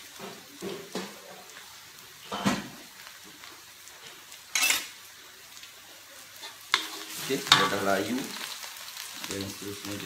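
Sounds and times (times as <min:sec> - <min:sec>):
frying sizzle in a wok: 0:00.0 - 0:10.0.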